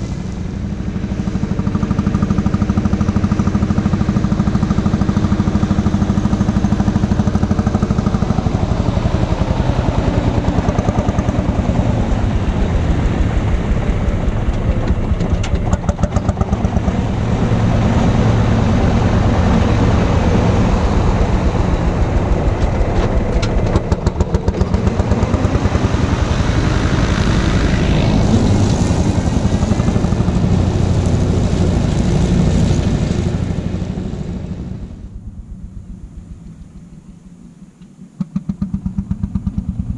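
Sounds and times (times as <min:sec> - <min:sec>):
single-cylinder tractor engine running: 0:00.0 - 0:36.6, 0:38.2 - 0:39.9.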